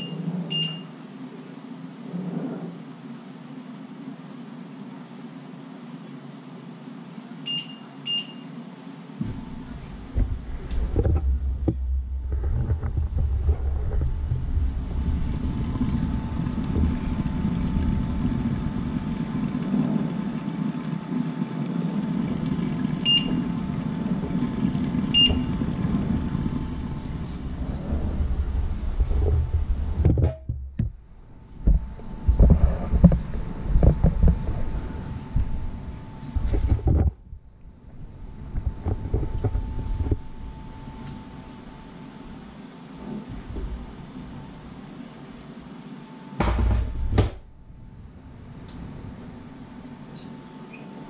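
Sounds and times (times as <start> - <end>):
steady low rumble: 9.2 - 42.6, 46.4 - 51.0
knocks: 46.4 - 47.4.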